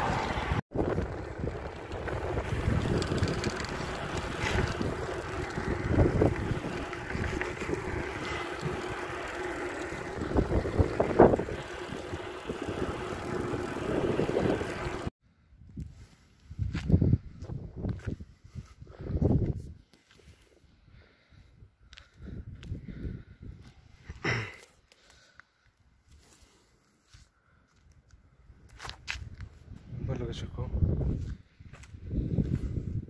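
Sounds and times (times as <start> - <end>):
wind rushing over microphone: 0.0 - 9.2, 9.8 - 15.1, 16.5 - 19.8, 29.2 - 33.0
tyres rumbling on road: 0.0 - 15.1.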